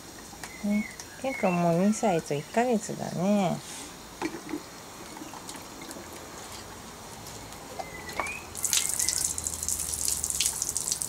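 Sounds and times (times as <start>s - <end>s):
water splashing in a bucket: 4.2s - 11.0s.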